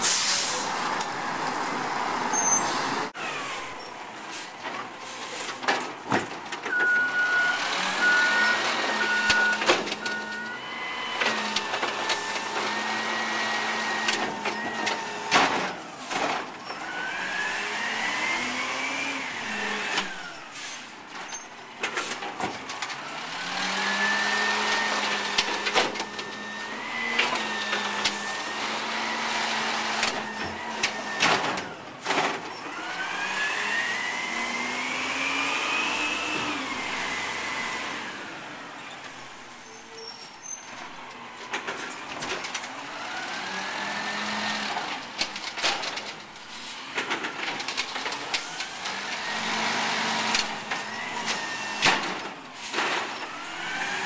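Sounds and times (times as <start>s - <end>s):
air brake hissing: 0.0s - 0.8s
truck engine revving: 23.0s - 31.2s, 48.1s - 52.0s.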